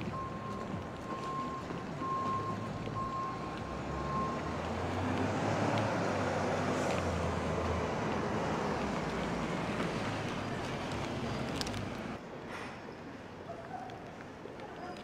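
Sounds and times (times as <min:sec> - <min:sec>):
reversing beeper: 0:00.0 - 0:04.6.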